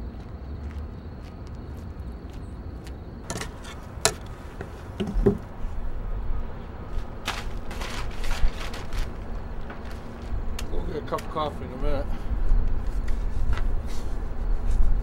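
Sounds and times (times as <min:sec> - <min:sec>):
sharp knocks: 0:03.3 - 0:05.5
scraper on painted metal: 0:07.3 - 0:09.2.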